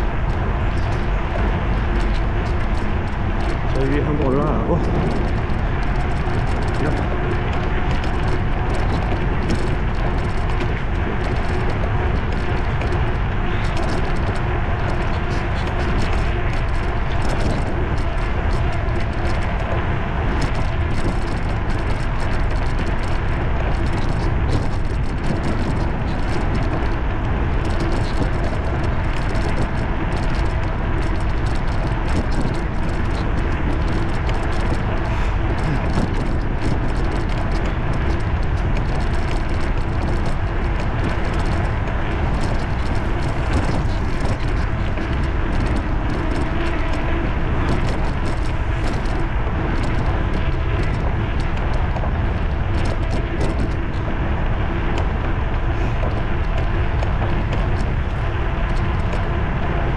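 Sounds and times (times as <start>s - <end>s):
bicycle tyre noise on pavement: 0.0s - 59.9s
wind rush on microphone: 0.0s - 59.9s.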